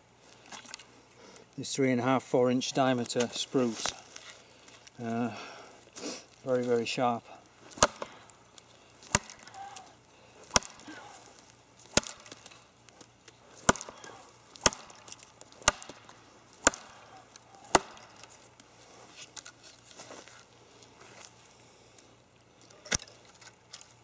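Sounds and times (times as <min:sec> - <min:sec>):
knife chopping into wood: 0:07.7 - 0:08.2, 0:09.0 - 0:09.9, 0:10.5 - 0:11.3, 0:11.9 - 0:12.5, 0:13.6 - 0:18.3.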